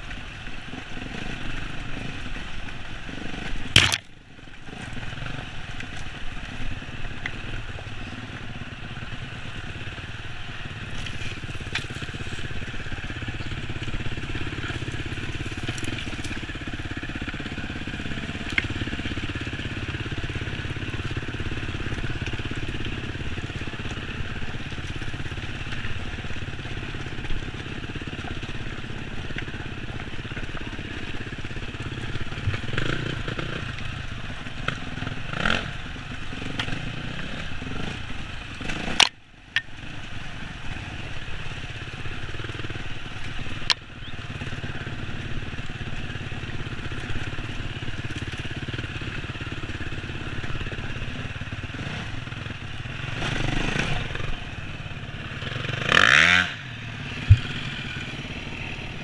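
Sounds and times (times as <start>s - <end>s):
dirt bike engine running: 0.0s - 59.0s
bike knocking over stones: 3.6s - 4.1s.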